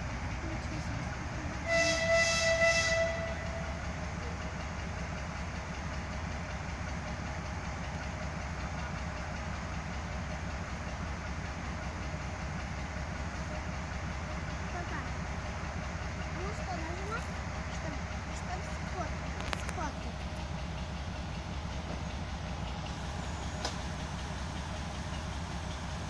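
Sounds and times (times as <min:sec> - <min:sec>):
diesel engine rumbling: 0:00.0 - 0:26.0
locomotive horn blast: 0:01.6 - 0:03.9.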